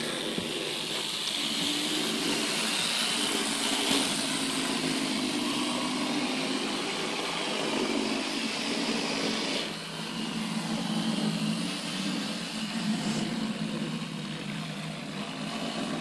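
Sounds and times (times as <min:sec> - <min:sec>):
model train motors whirring: 0:00.0 - 0:16.0
wheels on track: 0:00.0 - 0:16.0.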